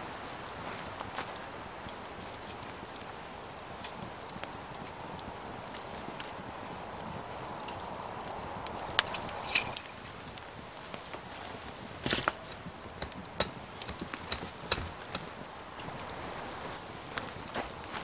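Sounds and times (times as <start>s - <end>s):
light knocks and crackles: 0.6s - 18.0s
rustling or scraping: 9.1s - 10.2s, 10.8s - 18.0s.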